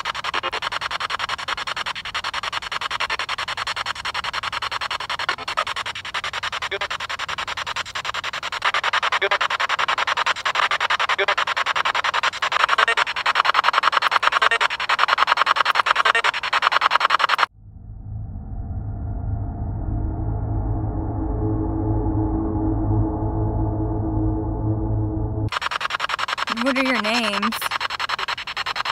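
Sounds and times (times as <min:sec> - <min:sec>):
choppy radio static: 0:13.8 - 0:17.5, 0:25.5 - 0:28.0
radio voice fragments: 0:26.5 - 0:27.7.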